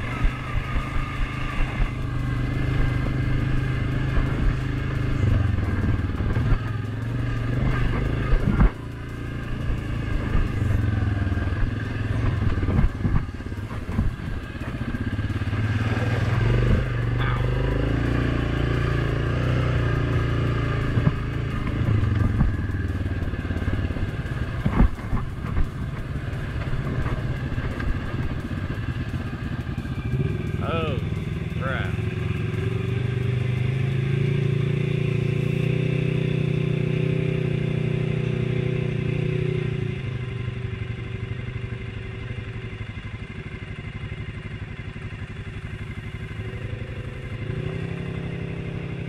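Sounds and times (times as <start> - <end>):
knocks and rattles over ground: 0.0 - 34.8
quad bike engine under throttle: 0.0 - 49.0.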